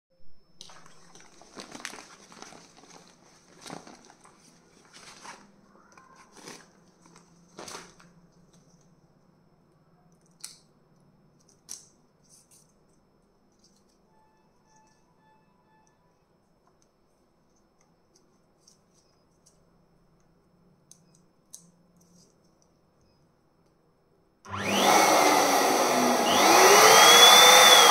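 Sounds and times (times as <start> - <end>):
packaging rustling and crinkling: 0.7 - 8.9.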